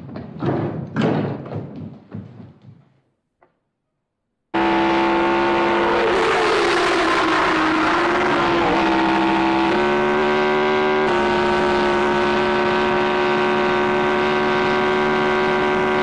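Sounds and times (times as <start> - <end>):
racing car engine at high revs: 4.5 - 16.0.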